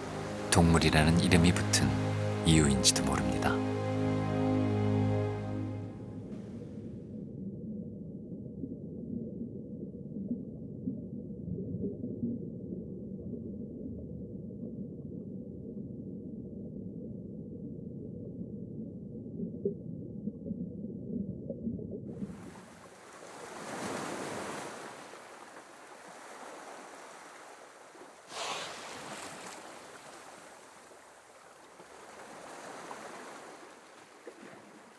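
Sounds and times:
muffled underwater ambience: 0.0 - 3.6
sea waves lapping: 0.0 - 6.8, 22.3 - 34.9
water splash: 28.3 - 31.0.

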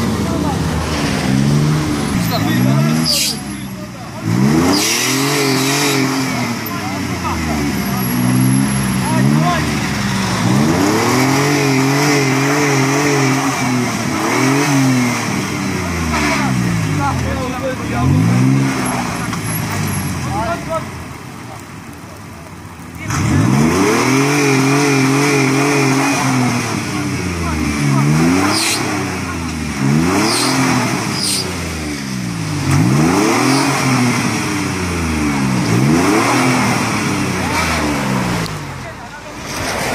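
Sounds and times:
engine revving hard: 0.0 - 20.8, 23.0 - 38.8
wheels spinning in mud: 36.7 - 39.9.

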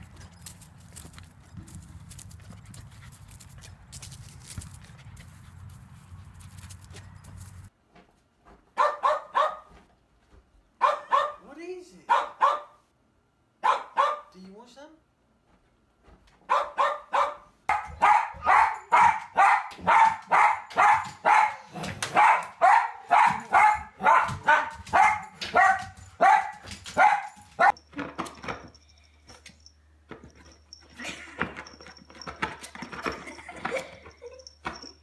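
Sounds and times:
dog barking: 8.8 - 9.8, 10.8 - 11.4, 12.1 - 12.8, 13.6 - 14.3, 16.5 - 27.8.

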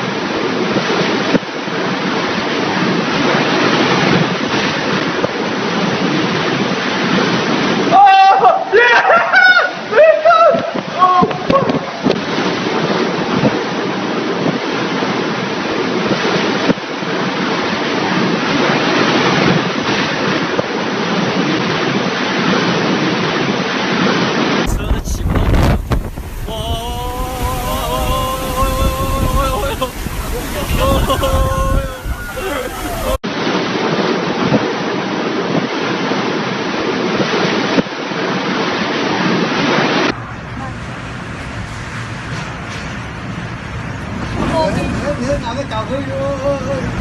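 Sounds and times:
heavy rain: 0.0 - 47.0
strong wind: 0.0 - 47.0
wind buffeting microphone: 10.5 - 47.0.

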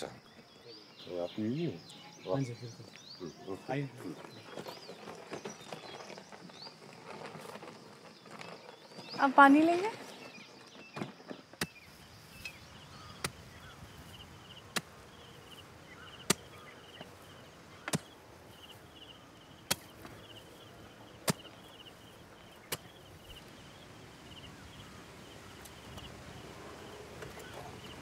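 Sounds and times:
faint insect chirping: 0.0 - 28.0
hoe striking hard earth: 16.2 - 16.7, 17.8 - 18.2, 19.6 - 20.3, 21.2 - 21.7.

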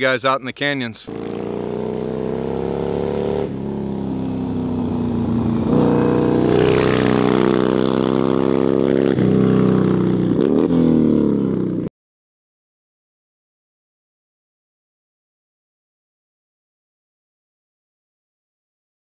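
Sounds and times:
motorcycle engine accelerating: 1.1 - 11.9.

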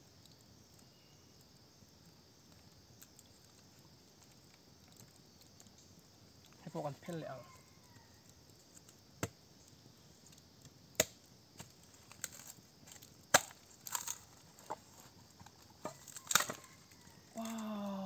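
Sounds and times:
bamboo chopping and cracking: 8.8 - 9.4, 10.6 - 17.8.

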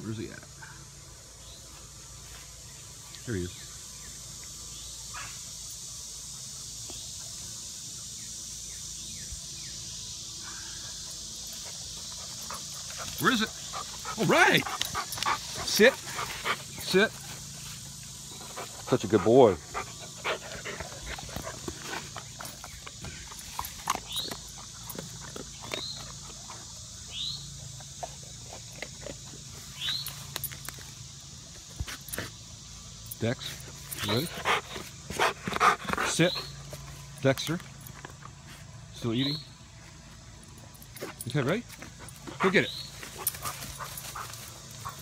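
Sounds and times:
rustling in leafy ground cover: 10.4 - 27.3, 41.2 - 45.0
dog snuffling and chewing: 11.7 - 30.8.

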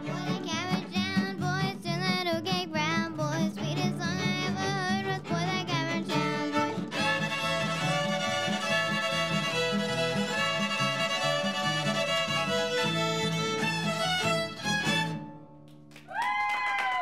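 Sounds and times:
fiddles playing a tune: 0.0 - 1.2, 3.4 - 15.2.

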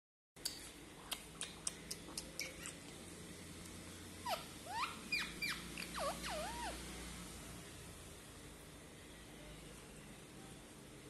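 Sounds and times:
parakeet squeaky chirps: 4.2 - 6.8.

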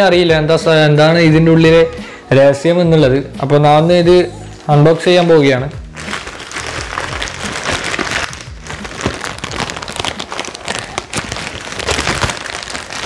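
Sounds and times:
plastic bag crinkling: 4.6 - 13.0.

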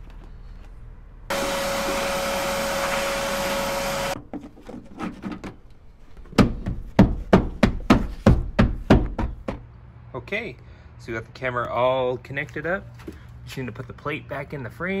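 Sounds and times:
fist pounding plastic trim: 6.3 - 9.6.

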